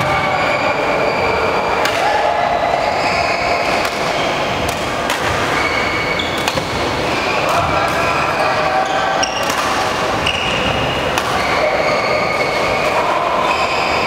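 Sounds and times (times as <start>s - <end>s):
shoes squeaking on floor: 5.4s - 7.4s, 10.2s - 12.8s
racket striking shuttlecock: 6.4s - 6.8s, 11.1s - 11.5s.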